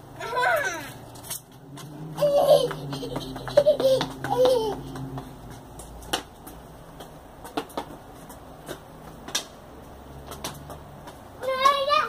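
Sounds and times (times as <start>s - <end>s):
sharp taps: 2.7s - 9.6s.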